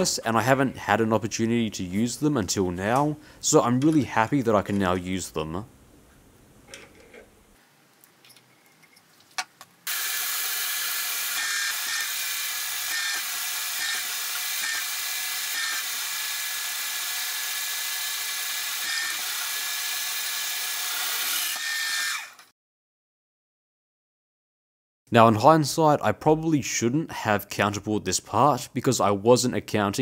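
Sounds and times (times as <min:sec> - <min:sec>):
drill cutting through steel: 0:09.9 - 0:22.5.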